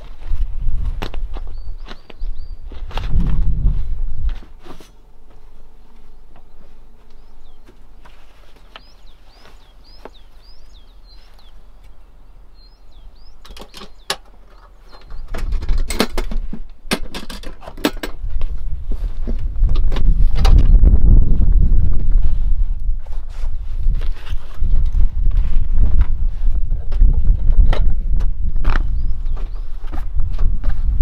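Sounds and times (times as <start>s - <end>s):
small bird chirping: 1.4s - 2.8s, 6.1s - 7.8s, 8.4s - 15.6s, 28.8s - 29.9s
low rumble: 2.4s - 4.4s.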